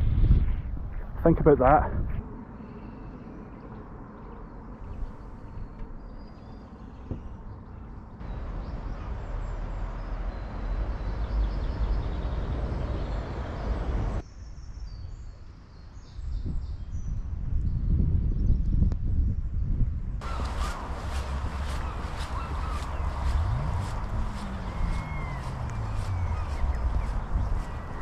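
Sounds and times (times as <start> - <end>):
low rumbling: 17.8 - 28.0
faint bird calls: 20.2 - 28.0.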